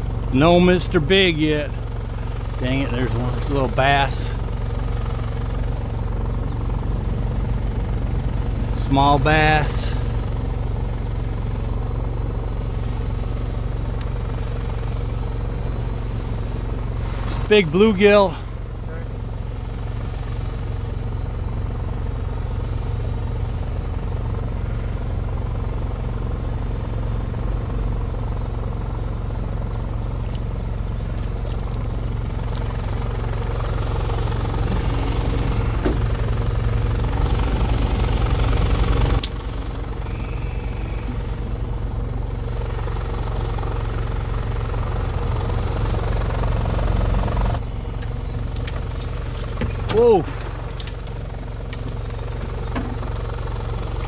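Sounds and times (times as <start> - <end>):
small engines pulsing rumble: 0.0 - 54.0.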